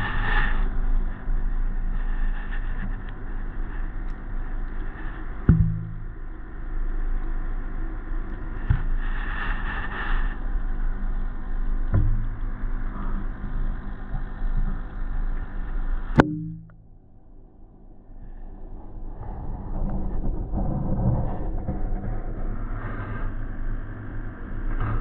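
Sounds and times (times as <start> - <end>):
steady low underwater hum: 0.0 - 25.0
dull knocks on glass: 5.5 - 6.0.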